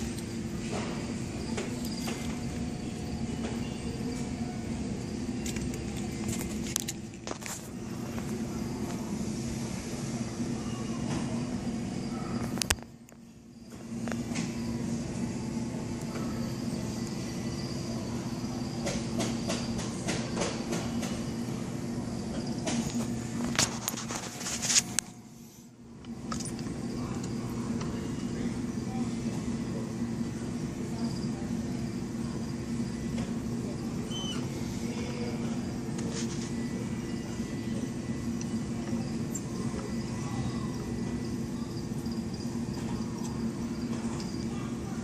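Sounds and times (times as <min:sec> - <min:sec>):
mechanical hum: 0:00.0 - 0:45.0
faint chirp: 0:34.0 - 0:35.4, 0:36.5 - 0:44.6.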